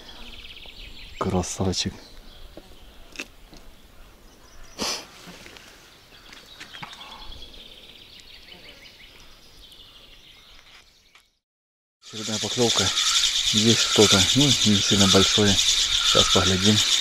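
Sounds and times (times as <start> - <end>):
faint outdoor ambience: 0.0 - 11.2, 12.1 - 17.0
rapid high-pitched chirping: 12.1 - 17.0.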